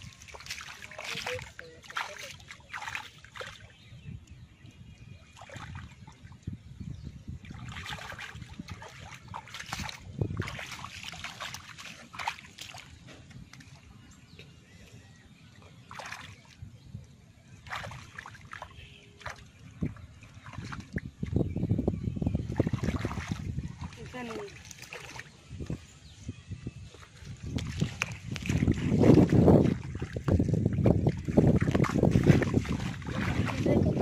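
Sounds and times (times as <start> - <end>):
hands splashing in muddy water: 0.0 - 3.8, 7.4 - 13.9, 15.8 - 16.7, 17.5 - 21.4, 22.4 - 25.8, 26.9 - 34.0.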